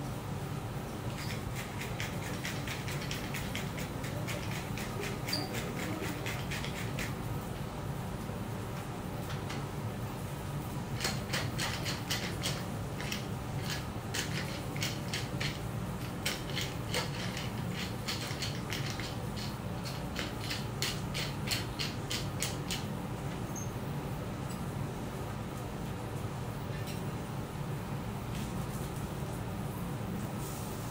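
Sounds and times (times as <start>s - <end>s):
seasoning mill grinding clicks: 1.1s - 7.2s, 11.0s - 22.9s.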